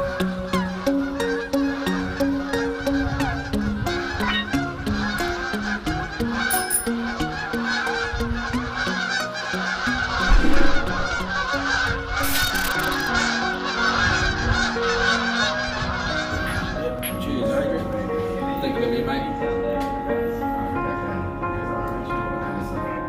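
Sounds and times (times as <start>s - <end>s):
geese honking: 0.0s - 17.0s
loud low thump: 10.2s - 11.4s.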